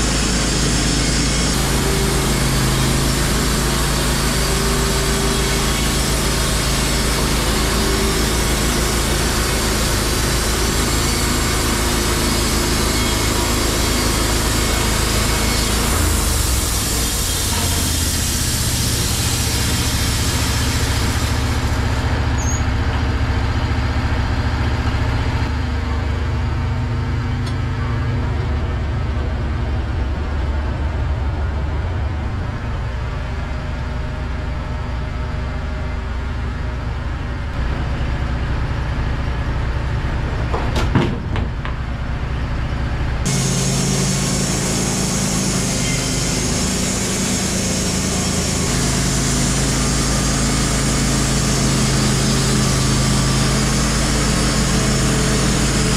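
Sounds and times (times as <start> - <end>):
sawmill engine running: 0.0 - 55.9.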